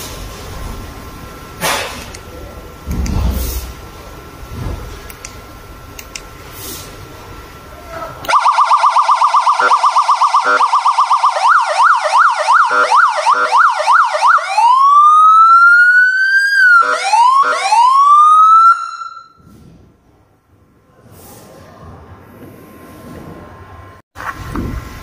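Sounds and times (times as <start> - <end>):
siren warbling and sweeping: 8.3 - 19.4.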